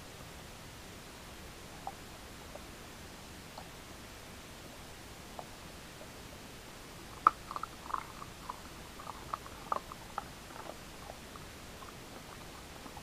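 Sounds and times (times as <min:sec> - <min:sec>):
dog chewing crunchy bean: 0:07.0 - 0:13.0
mouth clicks: 0:07.0 - 0:13.0.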